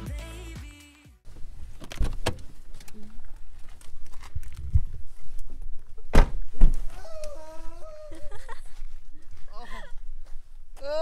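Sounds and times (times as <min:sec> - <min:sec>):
car doors shutting: 0:01.3 - 0:03.1, 0:06.0 - 0:06.9
shuffling footsteps: 0:02.4 - 0:11.0.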